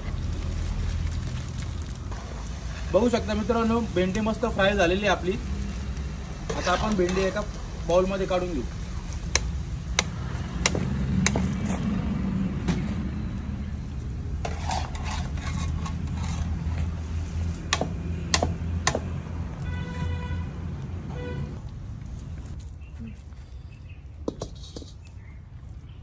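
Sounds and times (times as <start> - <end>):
metal ladle scraping and clinking: 6.4 - 7.4, 14.4 - 16.8.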